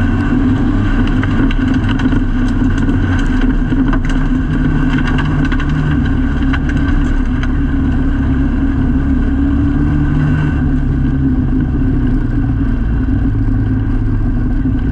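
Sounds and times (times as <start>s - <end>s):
race car engine running: 0.0s - 14.9s.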